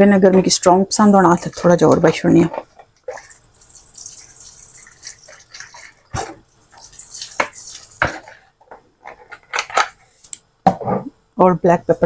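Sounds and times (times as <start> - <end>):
gravy simmering: 1.0 - 9.4
liquid pouring into a pan: 3.0 - 8.4.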